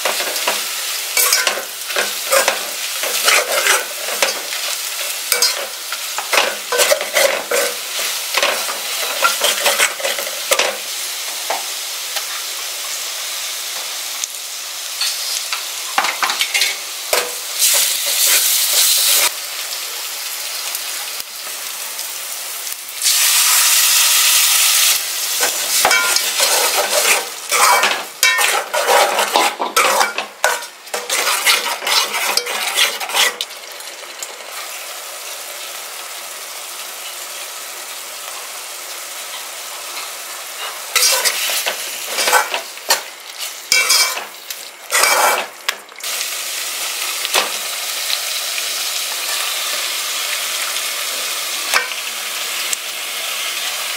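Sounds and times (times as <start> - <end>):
onions sizzling in a pot: 0.0 - 53.9
metal spatula scraping pot: 1.2 - 4.5, 5.3 - 10.8, 25.4 - 33.5, 40.6 - 43.0, 43.7 - 44.3, 44.9 - 45.5.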